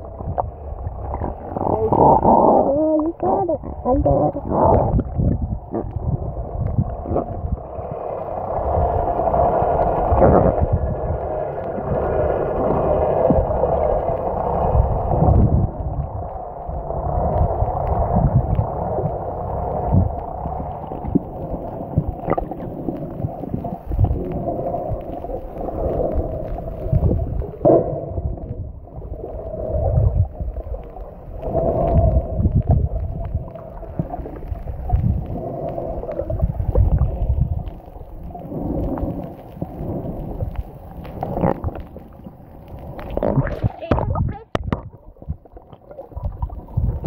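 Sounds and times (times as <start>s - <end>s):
muffled underwater rumbling: 0.0s - 47.0s
faint clicks: 29.2s - 47.0s.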